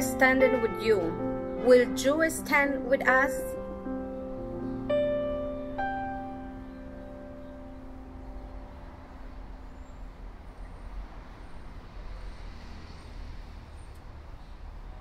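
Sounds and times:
piano notes: 0.0s - 11.7s.

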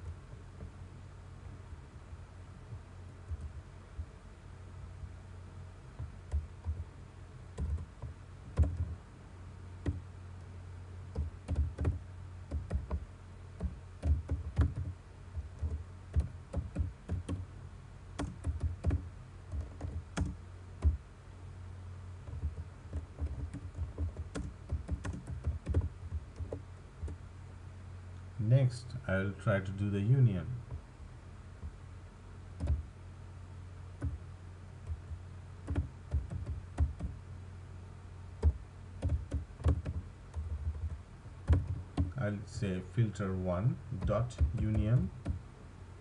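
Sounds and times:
steady low hum: 0.0s - 46.0s
keyboard typing: 7.6s - 9.0s, 11.1s - 13.0s, 13.6s - 17.4s, 18.2s - 21.0s, 22.2s - 27.2s, 32.6s - 32.8s, 34.9s - 37.1s, 38.4s - 42.1s, 44.0s - 45.4s.

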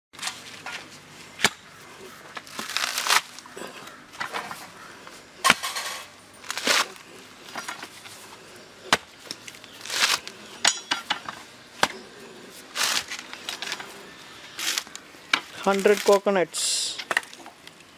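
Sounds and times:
husk fibres tearing: 1.4s - 4.0s, 6.4s - 7.2s, 9.3s - 10.4s, 12.5s - 16.3s
coconut husk cracking: 1.4s - 4.1s, 6.4s - 7.6s, 8.8s - 10.4s, 12.6s - 16.4s.

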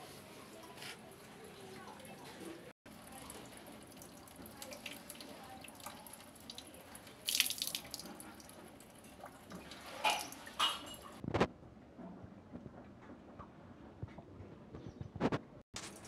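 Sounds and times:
water dripping from hose: 2.9s - 11.1s.

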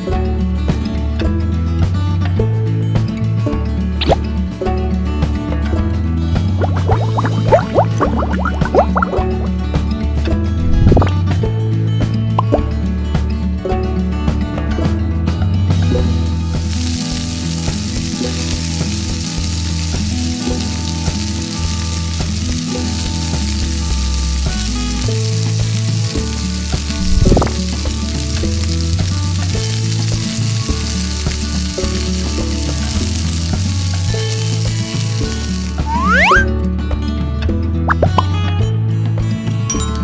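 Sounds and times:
background music: 0.0s - 40.0s
egg sizzling in a pan: 6.6s - 9.4s, 16.3s - 36.4s.

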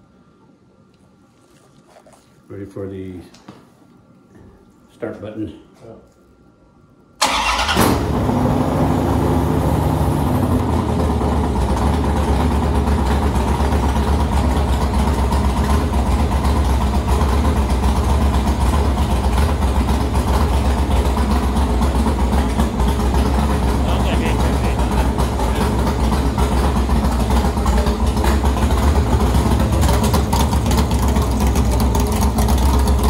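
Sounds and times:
engine starting and idling: 7.2s - 33.0s.

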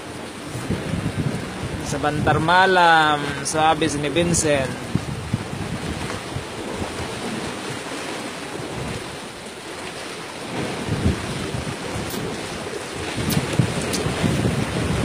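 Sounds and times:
waves washing: 0.0s - 15.0s
wind buffeting microphone: 0.0s - 15.0s.

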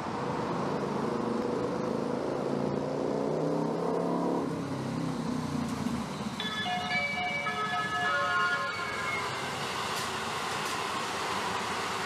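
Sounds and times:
train running noise: 6.0s - 12.0s.

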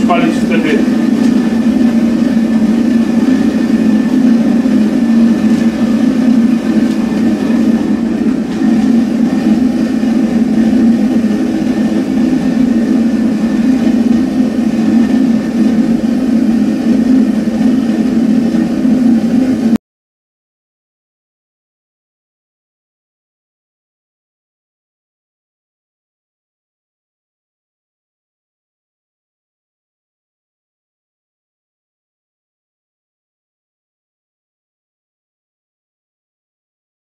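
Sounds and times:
burner flame burning: 0.0s - 19.8s
electric blower humming: 0.0s - 19.8s.

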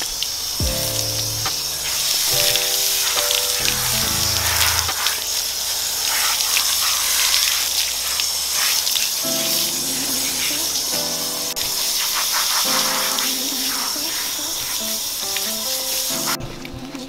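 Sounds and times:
hose spray hissing: 0.0s - 16.4s
background music chords: 0.6s - 5.5s.

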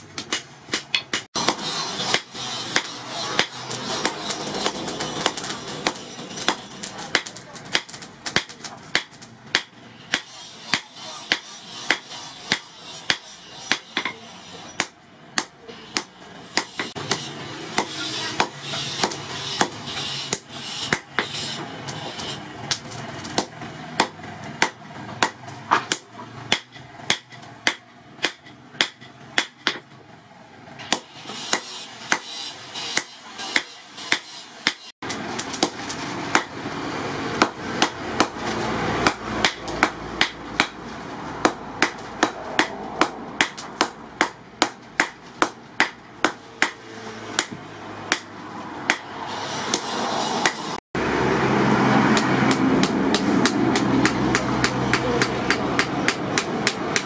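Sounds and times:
steady background noise: 0.0s - 57.0s
hammer striking metal anvil: 0.2s - 22.8s.

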